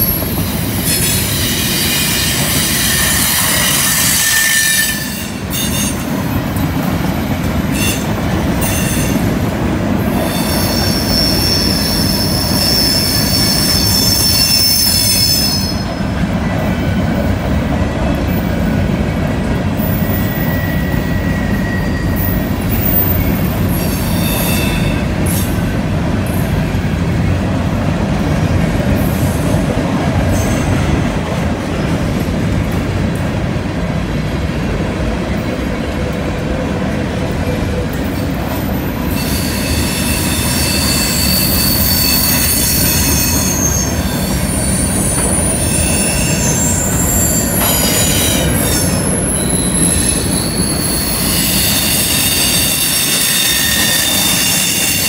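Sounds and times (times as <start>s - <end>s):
high wheel squeal: 0.0s - 6.0s, 10.1s - 16.0s, 19.8s - 25.6s, 39.0s - 55.0s
steel wheels rumbling on rail: 0.0s - 55.0s.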